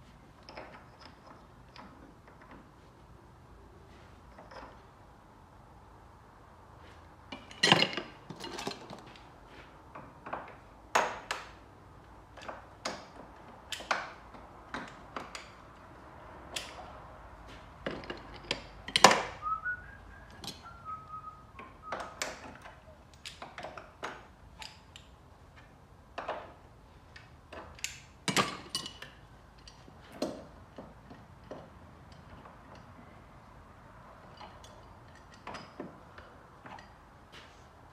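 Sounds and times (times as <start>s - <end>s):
person whistling: 19.4s - 22.2s.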